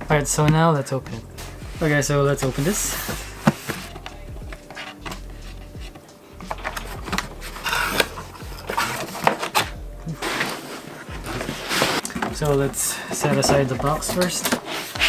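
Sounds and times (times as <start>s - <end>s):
cardboard scraping and rustling: 1.3s - 15.0s
cardboard packaging being opened: 6.5s - 12.4s.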